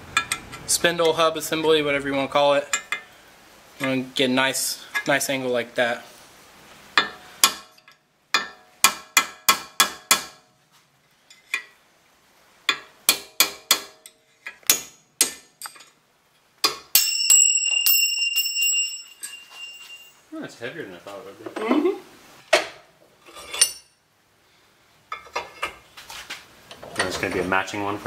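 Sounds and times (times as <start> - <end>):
hammer striking metal punch: 8.4 - 10.4, 12.7 - 14.0.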